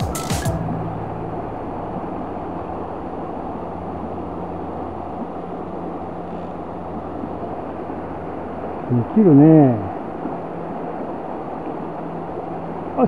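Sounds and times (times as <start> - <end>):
faint low hum: 0.5 - 13.0.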